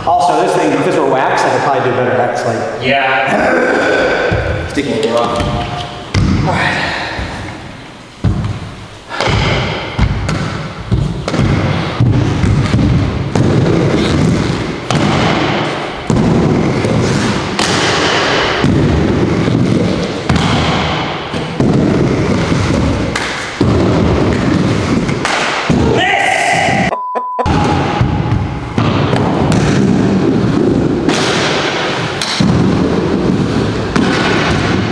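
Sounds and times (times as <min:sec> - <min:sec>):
skate landing thuds: 0:05.4 - 0:26.1, 0:27.5 - 0:34.9
skate wheels rolling on wooden ramp: 0:08.2 - 0:26.8, 0:27.7 - 0:34.9.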